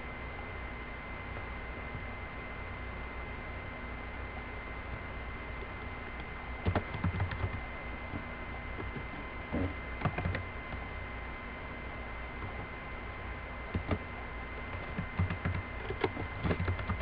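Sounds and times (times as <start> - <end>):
keyboard typing: 6.6 - 7.6, 8.8 - 9.1, 10.0 - 10.8, 12.4 - 12.7, 13.7 - 14.0, 14.6 - 17.0.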